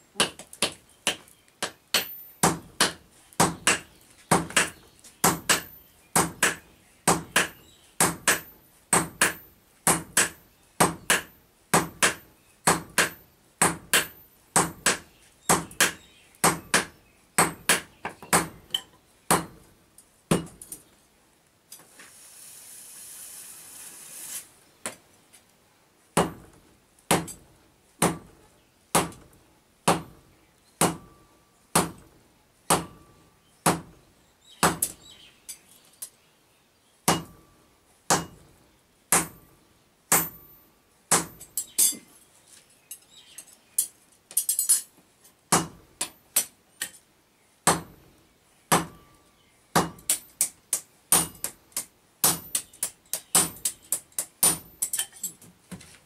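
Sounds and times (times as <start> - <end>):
hammer striking metal on anvil: 37.1 - 37.5, 40.1 - 40.5.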